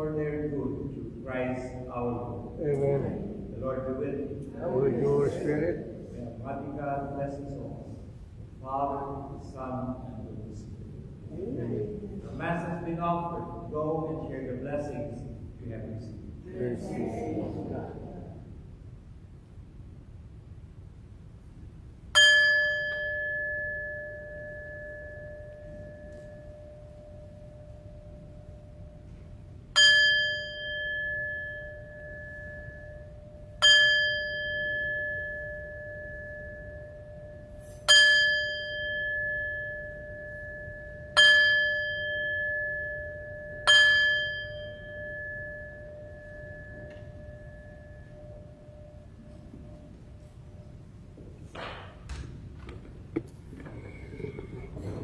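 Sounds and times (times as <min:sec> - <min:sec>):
bell ringing: 0:22.2 - 0:29.2, 0:29.8 - 0:51.0.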